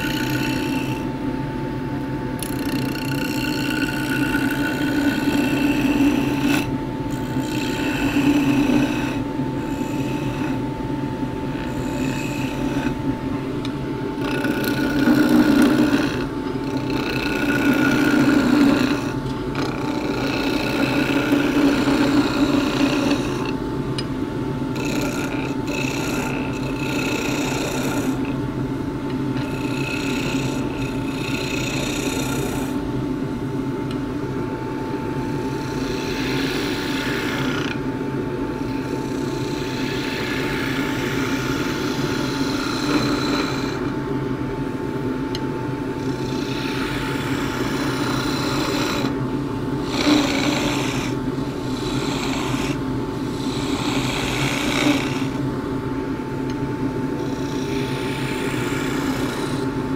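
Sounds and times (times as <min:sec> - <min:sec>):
chisel cutting spinning wood: 0:00.0 - 0:01.1, 0:02.4 - 0:10.6, 0:11.5 - 0:13.1, 0:14.2 - 0:23.6, 0:24.7 - 0:28.4, 0:35.6 - 0:37.8, 0:38.7 - 0:43.9, 0:46.1 - 0:49.2, 0:49.8 - 0:55.4
lathe motor humming: 0:00.0 - 0:59.9.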